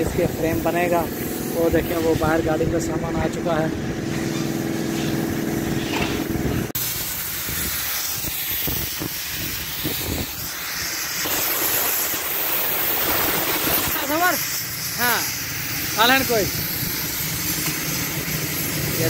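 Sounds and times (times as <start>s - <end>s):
cutting torch hissing: 0.0s - 19.0s.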